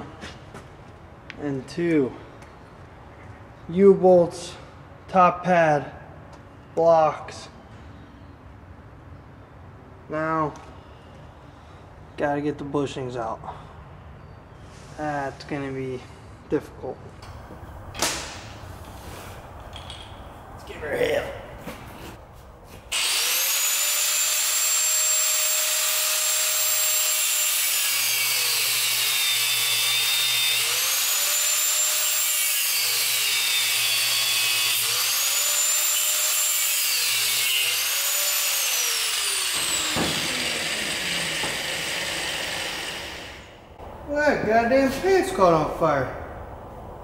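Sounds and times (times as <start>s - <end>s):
angle grinder grinding steel: 22.9s - 43.6s.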